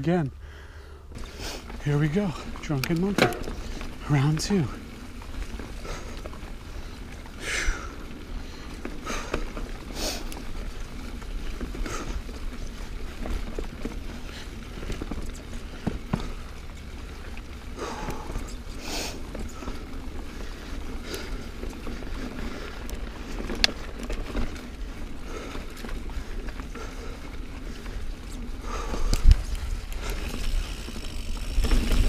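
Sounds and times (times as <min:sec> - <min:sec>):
bike tyres rolling on dirt: 0:00.0 - 0:32.0
sharp knocks and rattles from bumps: 0:01.1 - 0:04.6.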